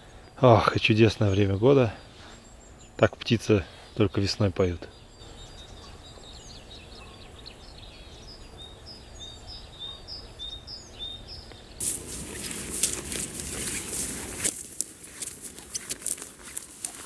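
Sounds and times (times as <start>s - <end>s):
songbirds chirping: 0.0s - 17.0s
loud rustling: 11.8s - 17.0s.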